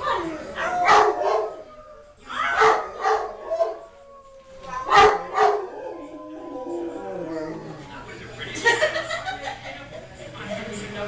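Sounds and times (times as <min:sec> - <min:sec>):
dog howling: 0:00.0 - 0:07.9.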